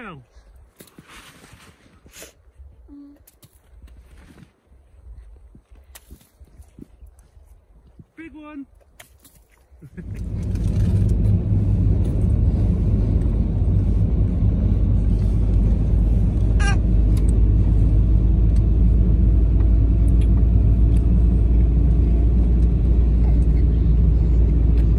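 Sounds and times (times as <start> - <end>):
vehicle road rumble: 9.2 - 24.9.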